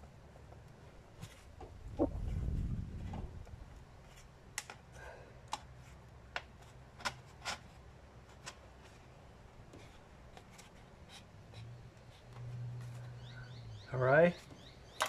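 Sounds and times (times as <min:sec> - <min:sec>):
low rumble: 0:01.7 - 0:03.6.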